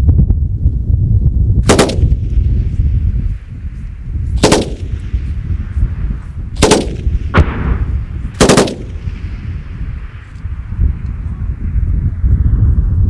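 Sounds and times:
low wind rumble on microphone: 0:00.0 - 0:13.0
automatic gunfire bursts: 0:01.6 - 0:02.2, 0:04.4 - 0:05.0, 0:06.6 - 0:07.6, 0:08.4 - 0:09.2
single gunshot: 0:01.6 - 0:02.2, 0:04.4 - 0:05.0, 0:06.6 - 0:09.4.

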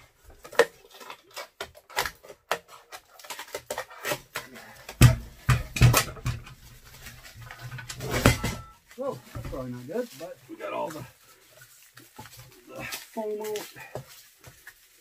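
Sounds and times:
packaging rustling and clicking: 0:00.0 - 0:10.3
scissors snipping foam and plastic: 0:00.4 - 0:05.0
heavy thumps: 0:04.9 - 0:09.8.

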